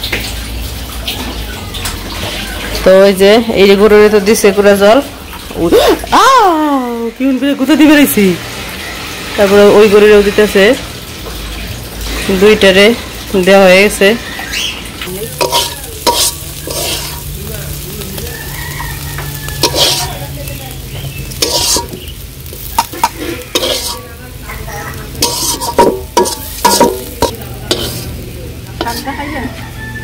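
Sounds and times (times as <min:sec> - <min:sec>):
metal spatula scraping iron pan: 0:15.3 - 0:17.3, 0:19.5 - 0:20.3, 0:21.3 - 0:24.2, 0:25.1 - 0:28.2, 0:28.8 - 0:29.2.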